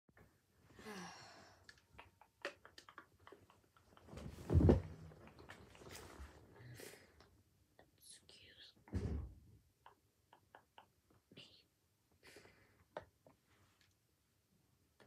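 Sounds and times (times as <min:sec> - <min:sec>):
rustle and thump: 0:04.2 - 0:05.1.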